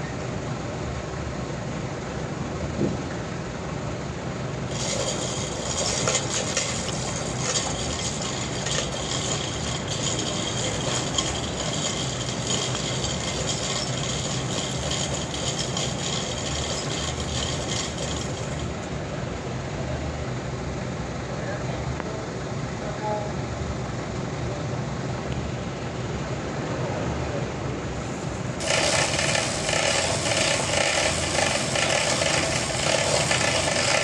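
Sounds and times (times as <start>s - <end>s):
sawmill machinery hum: 0.0s - 21.3s, 26.2s - 34.0s
chain hoist whining and rattling: 4.7s - 19.0s, 27.9s - 34.0s.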